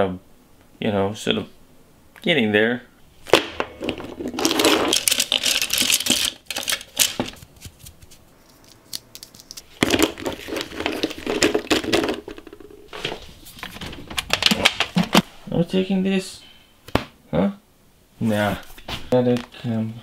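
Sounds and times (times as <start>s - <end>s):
paint tubes clattering on desk: 3.3s - 7.4s, 9.8s - 15.2s.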